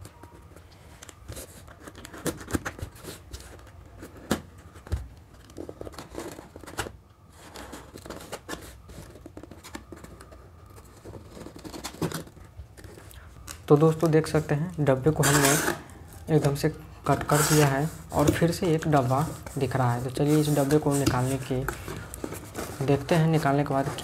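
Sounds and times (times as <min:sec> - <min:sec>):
scissors cutting cardboard: 0:15.2 - 0:15.8.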